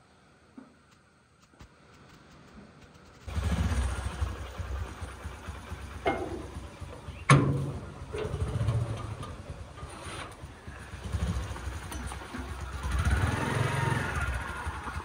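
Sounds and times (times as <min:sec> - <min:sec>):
motorcycle engine idling: 0:01.9 - 0:15.0
metal gate banging: 0:06.0 - 0:10.4.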